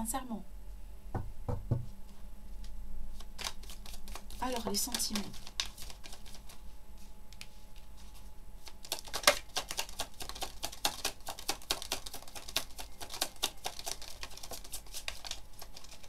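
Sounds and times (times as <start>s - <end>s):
cards being shuffled: 2.6s - 16.0s.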